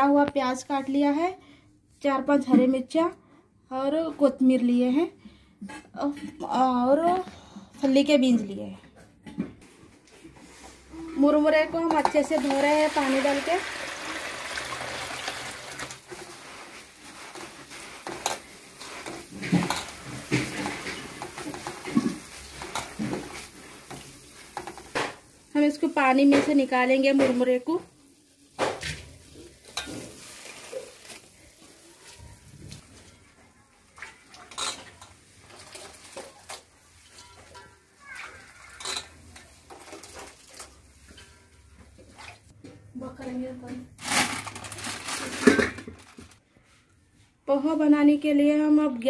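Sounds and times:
water pouring onto steel plate: 0:12.2 - 0:16.6
wet puffed rice squelching: 0:12.3 - 0:41.2.

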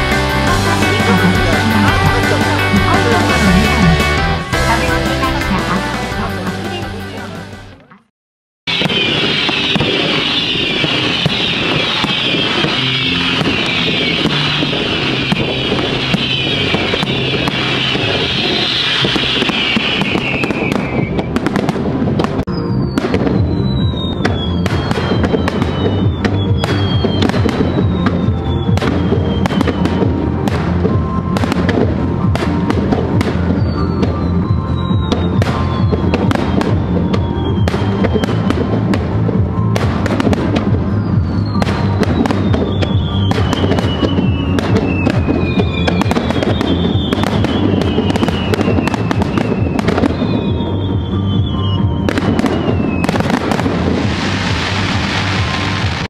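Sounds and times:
falling firework whistles: 0:08.7 - 0:21.6, 0:22.5 - 0:30.2, 0:33.5 - 0:38.7, 0:40.2 - 0:56.0.

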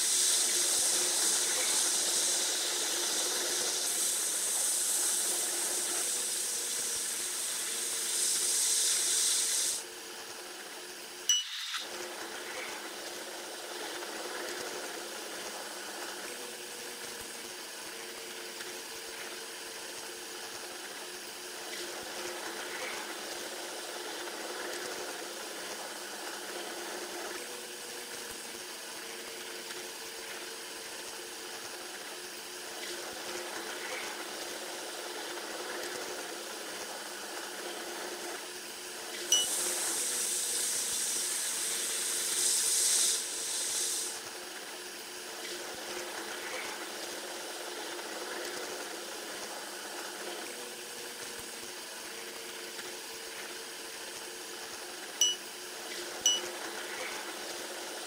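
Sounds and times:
sped-up train rushing hiss: 0:00.0 - 0:10.0, 0:39.5 - 0:44.4.

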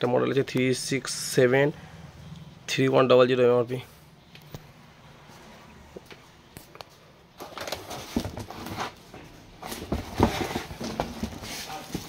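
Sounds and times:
cardboard flaps scraping and rustling: 0:07.4 - 0:12.0
knocks and thumps on cardboard box: 0:07.8 - 0:08.9, 0:09.6 - 0:12.0.

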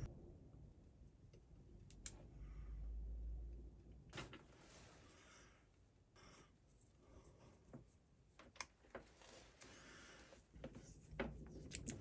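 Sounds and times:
wires and tape rustling: 0:07.6 - 0:12.0.

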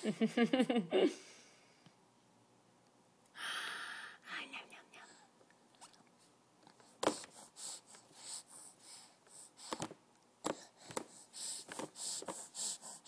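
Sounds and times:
baby breathing: 0:06.8 - 0:13.0.

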